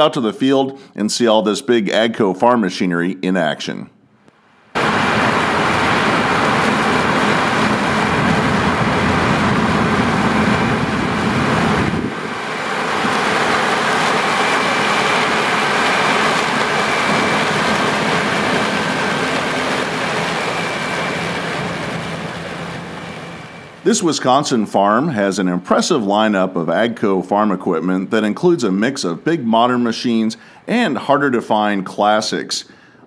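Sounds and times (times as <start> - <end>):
deep rumble: 4.8 - 23.8
combine harvester running: 4.8 - 24.0.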